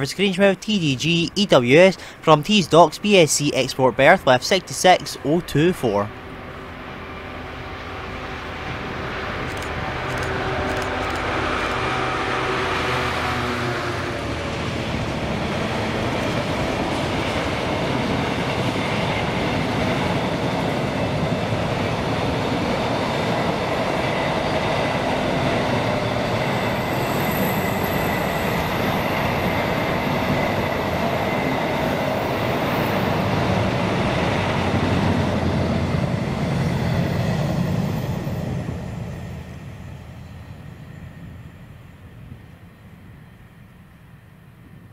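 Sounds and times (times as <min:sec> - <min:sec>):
diesel locomotive engine passing: 0:00.0 - 0:44.9
faint high wheel squeal: 0:26.3 - 0:31.6.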